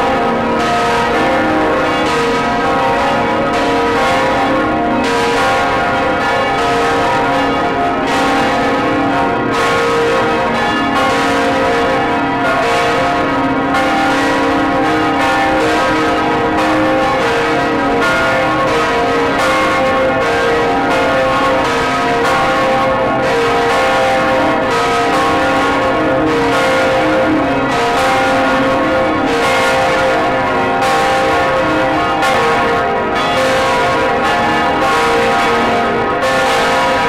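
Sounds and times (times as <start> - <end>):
church bells tolling: 0.0 - 37.0.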